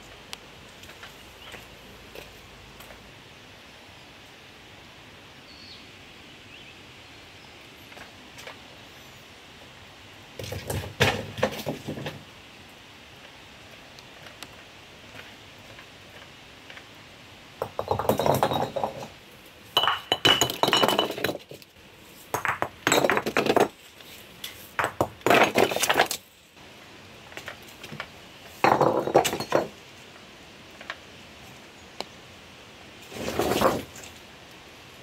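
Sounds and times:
stones knocking and clinking: 17.6s - 19.2s, 19.8s - 21.6s, 22.3s - 23.8s, 24.7s - 26.2s, 27.4s - 29.8s.

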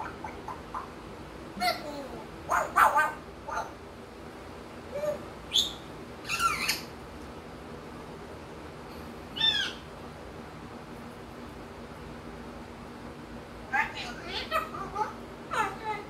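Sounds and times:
parrot whistled calls: 5.0s - 6.9s, 9.4s - 9.8s.

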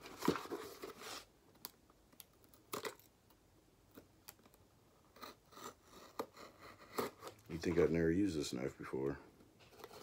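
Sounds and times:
knife scraping cardboard: 5.2s - 7.4s.

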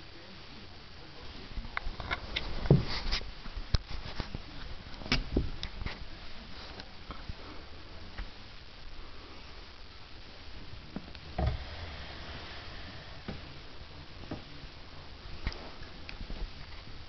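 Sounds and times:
thuds: 2.6s - 3.1s, 10.9s - 14.7s.

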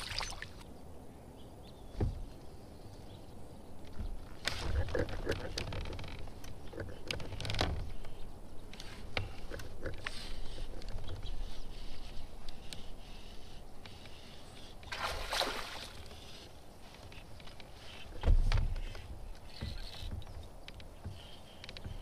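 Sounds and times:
water sloshing at hull: 13.8s - 22.0s.

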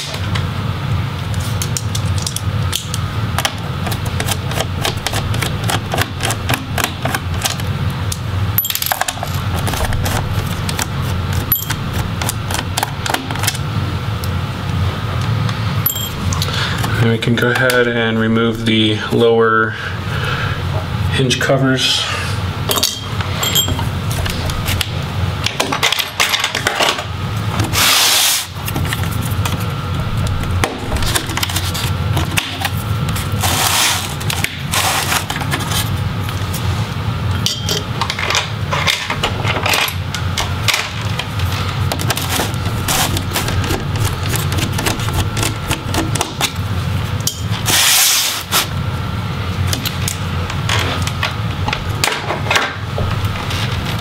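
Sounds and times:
plastic pry tools scraping plastic: 3.8s - 7.6s, 41.9s - 46.6s.

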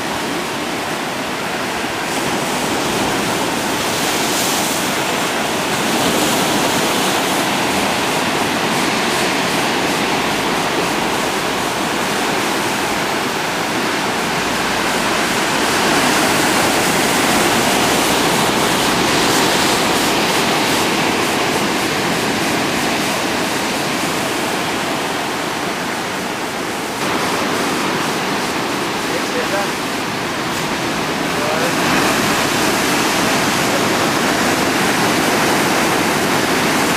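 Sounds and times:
surf breaking over rocks: 0.0s - 36.9s.

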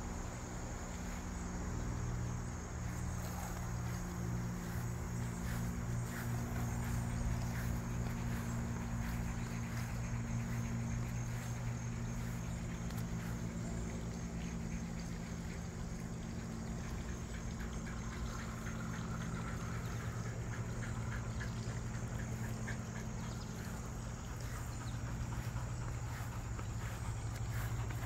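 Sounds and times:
low hum: 0.0s - 28.0s.

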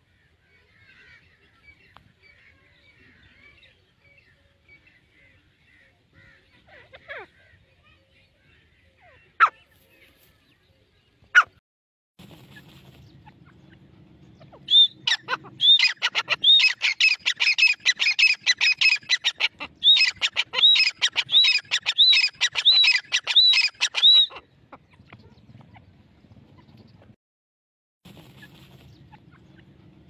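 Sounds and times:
francolin calling: 14.4s - 24.4s.

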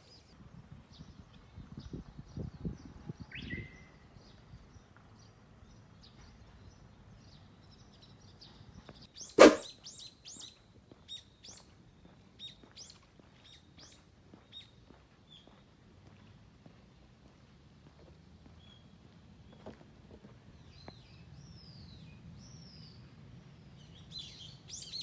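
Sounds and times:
songbirds chirping: 0.0s - 25.0s
bird gliding call: 9.4s - 9.7s
sharp loud knock: 9.4s - 9.7s.

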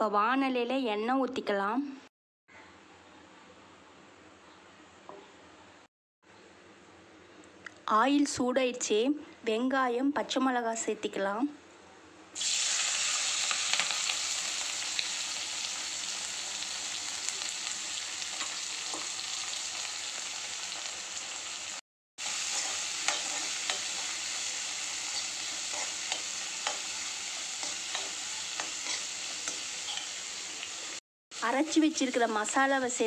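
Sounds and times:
onions sizzling in hot oil: 12.4s - 33.0s
spatula scraping pan: 22.4s - 24.3s.

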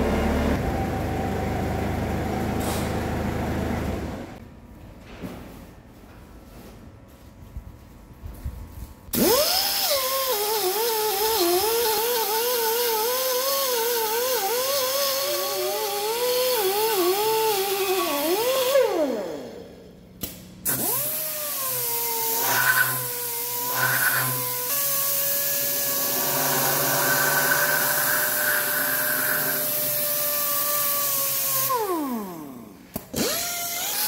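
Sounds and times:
die grinder whining: 20.8s - 34.0s
right-angle grinder whining: 20.8s - 34.0s
grinding scrapes on metal: 25.8s - 30.0s.

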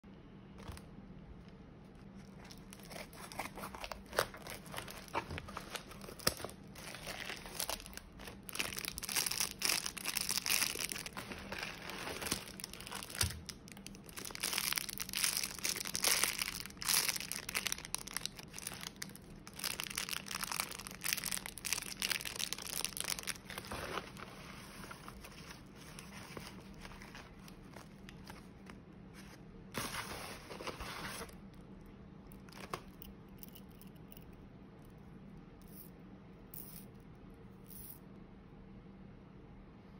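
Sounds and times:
plastic packaging crinkling: 0.6s - 0.9s, 1.9s - 28.8s.

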